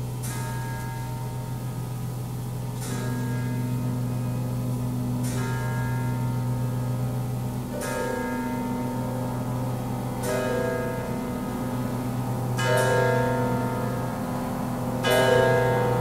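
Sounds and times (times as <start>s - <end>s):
ringing bell strikes: 10.2s - 16.0s.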